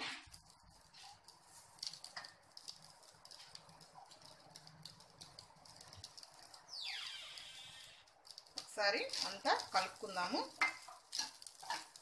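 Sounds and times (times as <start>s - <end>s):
rice crackling in a pan: 0.0s - 12.0s.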